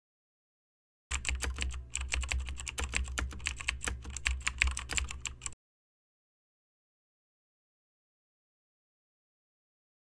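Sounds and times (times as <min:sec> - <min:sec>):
keyboard typing clicks: 0:01.1 - 0:05.6.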